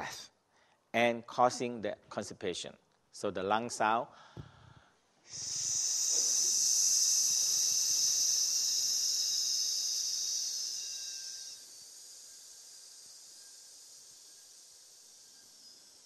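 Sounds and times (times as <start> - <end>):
man exhaling hiss through teeth: 4.2 - 16.0.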